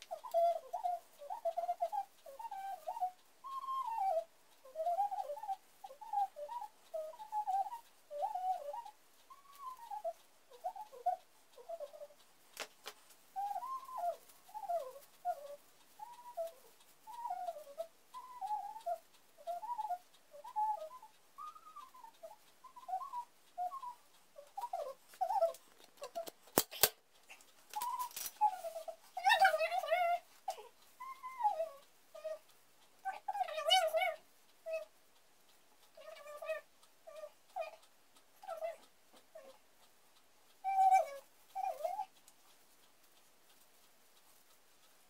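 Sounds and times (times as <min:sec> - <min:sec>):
sharp click: 0:24.6 - 0:28.4.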